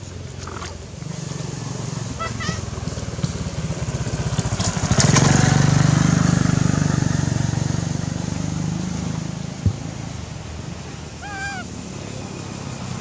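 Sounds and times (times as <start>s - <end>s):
small motorcycle engine running: 1.1s - 9.8s.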